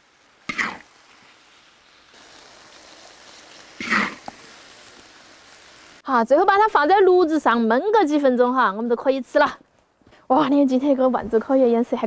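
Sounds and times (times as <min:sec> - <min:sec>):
faint sizzle: 0:00.0 - 0:12.0
spatula scraping wok: 0:02.6 - 0:05.0.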